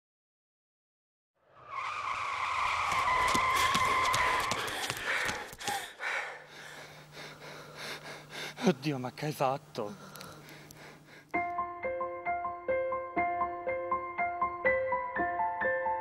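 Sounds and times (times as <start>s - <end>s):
loud high screech: 1.5s - 4.6s
low steady hum: 4.7s - 11.4s.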